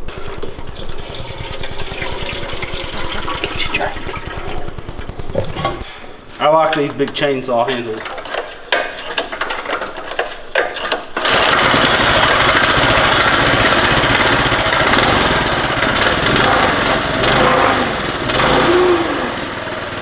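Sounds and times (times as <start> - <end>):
minibike engine running: 0.0 - 5.8, 11.2 - 20.0
clicks and knocks: 6.7 - 11.3.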